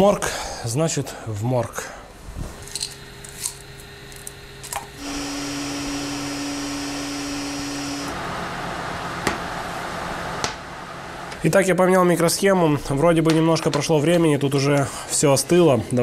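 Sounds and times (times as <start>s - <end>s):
hot-air station hissing: 1.8s - 13.0s
humming tone: 2.8s - 10.5s.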